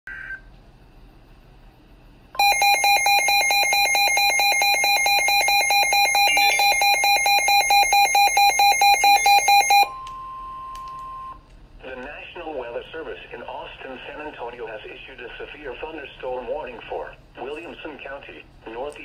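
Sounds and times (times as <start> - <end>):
rapidly pulsing electronic alarm beep: 2.4 - 11.4.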